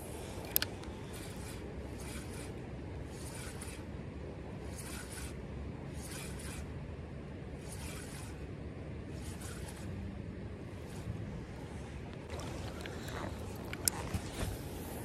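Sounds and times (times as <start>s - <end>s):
fishing reel winding: 0.4s - 2.5s, 3.1s - 3.8s.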